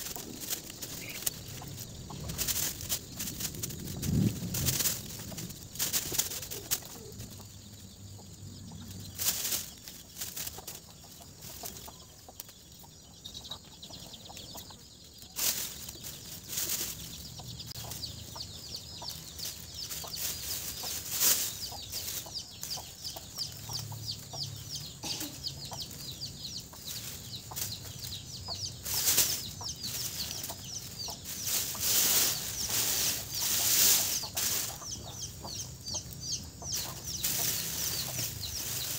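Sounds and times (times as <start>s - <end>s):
dry stalks rustling and crackling: 0.0s - 12.9s, 14.3s - 38.9s
fast high chirping: 27.0s - 38.9s.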